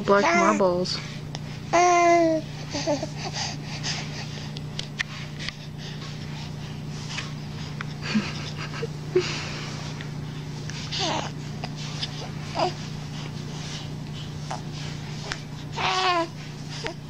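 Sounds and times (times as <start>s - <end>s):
steady low hum: 0.0s - 17.0s
baby cooing: 1.8s - 3.2s, 15.8s - 16.3s
baby breathing noisily: 2.2s - 4.5s.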